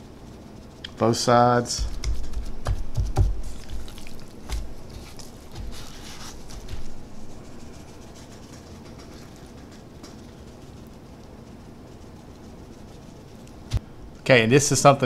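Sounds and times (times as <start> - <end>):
hands handling raw meat: 1.9 - 7.5.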